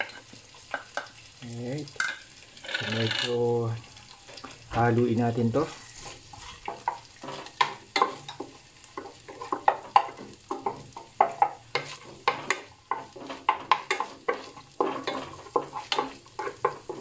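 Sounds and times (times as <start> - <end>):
garlic sizzling in oil: 0.0 - 17.0
utensil scraping and knocking pan: 5.6 - 17.0.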